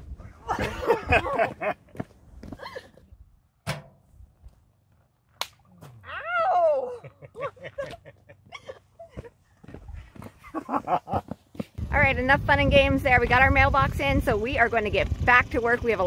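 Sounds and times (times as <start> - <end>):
hand slaps: 5.4 - 5.6
excited vocal sounds: 5.9 - 7.2
loud whooping cry: 6.0 - 7.2.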